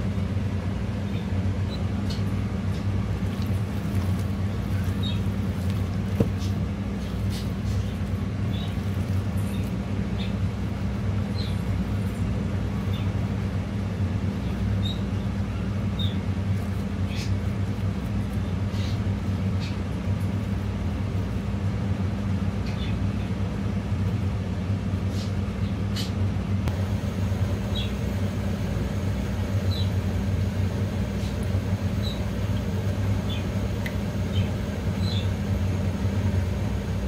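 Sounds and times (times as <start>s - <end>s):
wet squelches of batter mixing: 2.4s - 13.6s
low hum: 26.6s - 37.0s.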